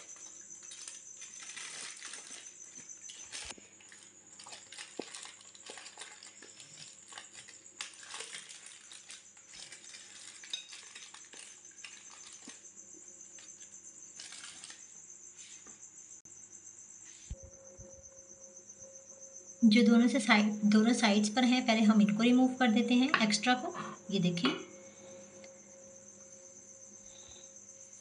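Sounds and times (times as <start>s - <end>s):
aluminium foil crinkling: 0.0s - 14.9s.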